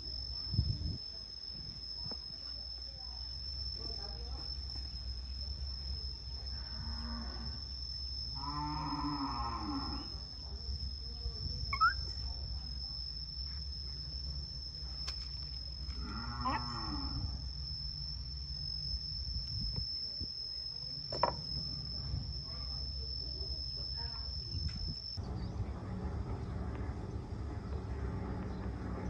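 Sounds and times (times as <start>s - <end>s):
high insect drone: 0.0s - 29.0s
short rising squeak: 11.7s - 12.0s
drawn-out moaning calls: 15.9s - 17.5s.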